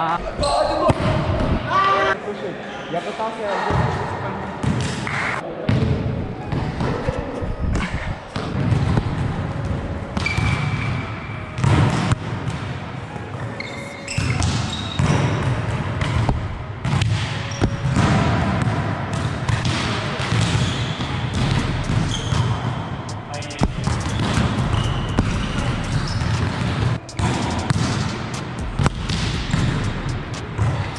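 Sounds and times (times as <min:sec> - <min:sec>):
volleyballs hit and bouncing: 0:07.7 - 0:13.4, 0:14.0 - 0:30.9
shoe squeaks: 0:10.2 - 0:11.0, 0:13.4 - 0:15.2, 0:21.6 - 0:26.4.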